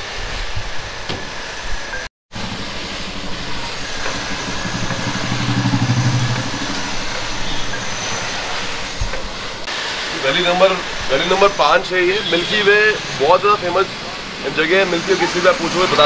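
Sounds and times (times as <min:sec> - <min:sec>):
street noise: 0:00.0 - 0:16.0
vehicle engine passing by: 0:02.4 - 0:09.7, 0:11.2 - 0:16.0.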